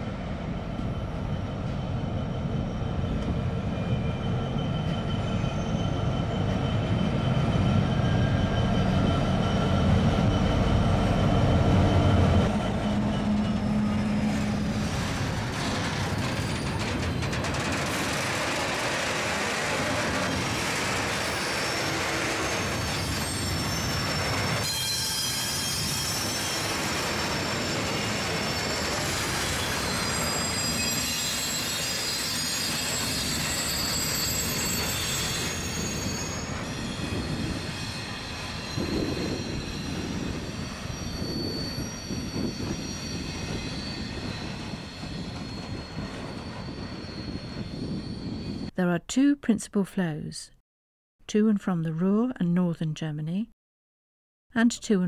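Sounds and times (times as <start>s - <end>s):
diesel locomotive passing: 0.0s - 48.7s
wagon wheels squealing: 11.9s - 48.7s.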